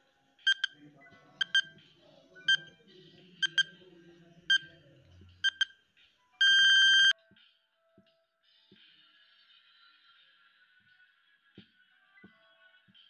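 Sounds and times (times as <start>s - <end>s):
longer electronic beep: 0.5s - 0.8s, 1.4s - 1.7s, 6.4s - 7.1s
short high electronic beeps: 0.5s - 0.8s, 6.4s - 7.1s.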